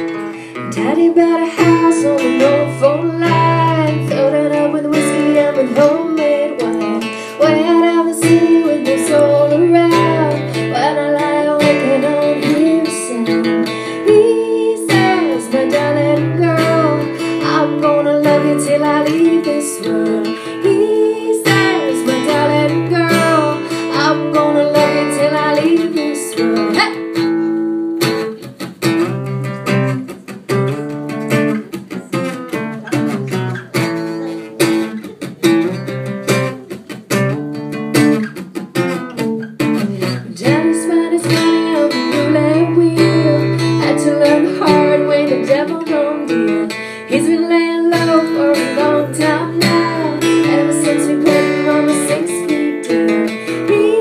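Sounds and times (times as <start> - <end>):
woman singing: 0.0 - 27.5, 39.2 - 54.0
acoustic guitar strumming: 0.0 - 54.0.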